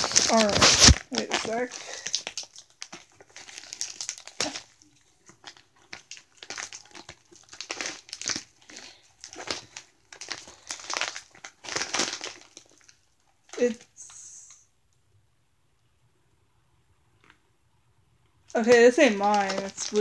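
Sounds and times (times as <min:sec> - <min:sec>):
packaging crinkling: 0:00.0 - 0:14.0, 0:18.5 - 0:20.0.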